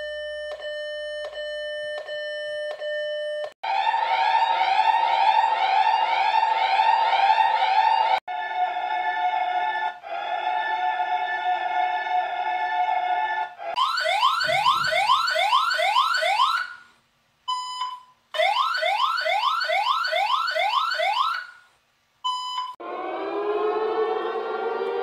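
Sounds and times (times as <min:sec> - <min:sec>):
siren wailing: 0:03.6 - 0:08.2, 0:13.7 - 0:16.8, 0:18.4 - 0:21.6, 0:22.8 - 0:25.0
steady chord of alarm tones: 0:03.6 - 0:12.9, 0:13.6 - 0:16.8, 0:22.8 - 0:25.0
short steady beep: 0:17.5 - 0:18.1, 0:22.3 - 0:22.8
fast rising whoops: 0:22.8 - 0:25.0.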